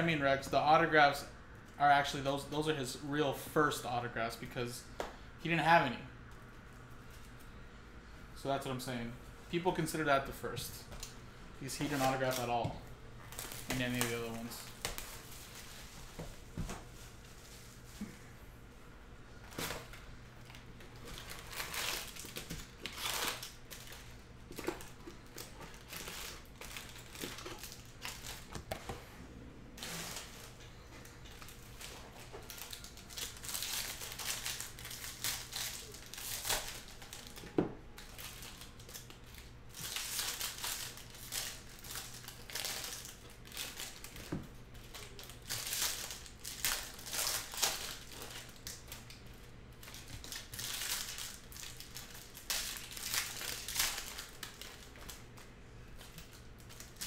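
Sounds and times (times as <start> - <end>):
card pack wrappers crinkling and tearing: 11.0 - 15.9, 19.5 - 28.8, 29.8 - 57.0.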